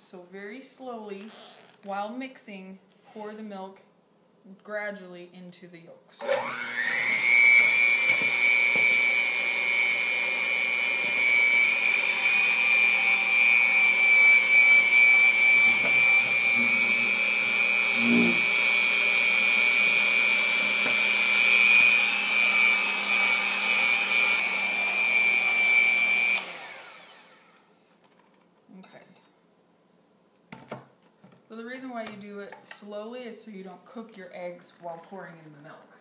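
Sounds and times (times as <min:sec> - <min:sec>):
electric hand mixer whining: 0:06.2 - 0:27.7.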